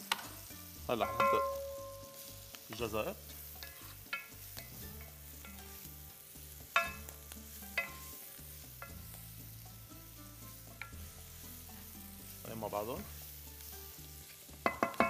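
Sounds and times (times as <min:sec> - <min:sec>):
vegetables sizzling in oil: 0:00.0 - 0:15.0
utensil clinking against pan: 0:01.0 - 0:02.0, 0:06.8 - 0:07.1, 0:07.8 - 0:08.2, 0:14.6 - 0:15.0.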